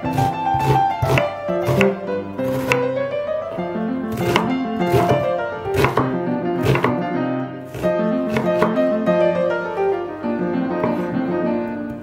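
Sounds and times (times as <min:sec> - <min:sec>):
knife chopping on wooden board: 0:00.0 - 0:02.9, 0:04.1 - 0:07.1, 0:07.7 - 0:08.9, 0:10.8 - 0:11.2
piano music: 0:00.0 - 0:12.0.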